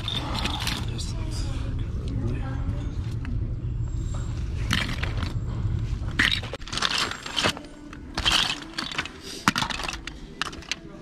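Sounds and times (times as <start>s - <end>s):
plastic toys clattering: 0.0s - 1.0s, 4.6s - 5.4s, 6.1s - 11.0s.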